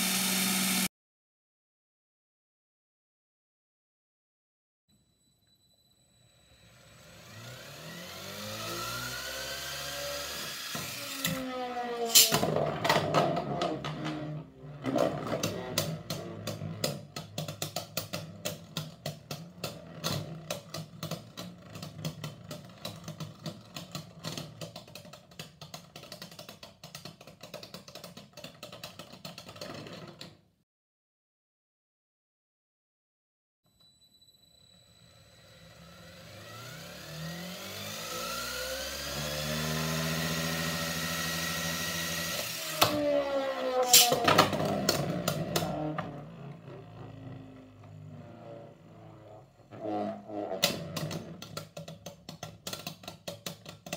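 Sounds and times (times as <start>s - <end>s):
electric motor whining: 0.0s - 0.9s, 6.6s - 12.4s, 35.4s - 50.2s.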